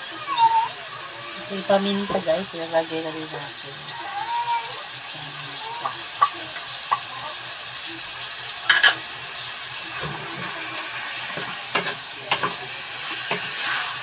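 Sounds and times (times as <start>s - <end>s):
meat sizzling in oil: 0.0s - 14.0s
wooden spatula scraping a pan: 10.0s - 14.0s.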